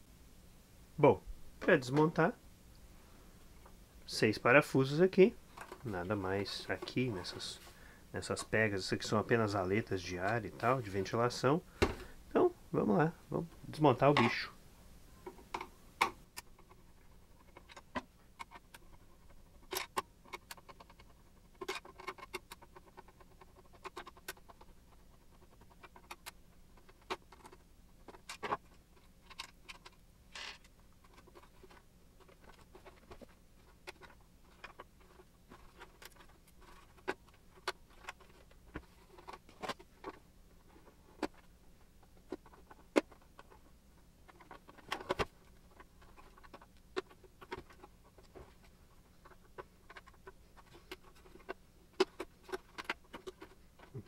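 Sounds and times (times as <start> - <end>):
plastic housing clicks and scratching: 15.2 - 54.0.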